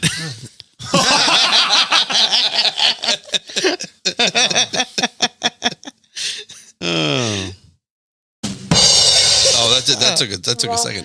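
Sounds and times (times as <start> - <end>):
men laughing hard: 0.8 - 6.6.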